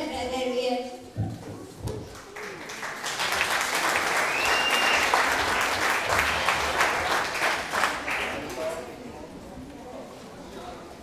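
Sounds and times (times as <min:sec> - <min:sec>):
audience applauding: 0:02.0 - 0:08.9
short high whistle: 0:04.3 - 0:05.1.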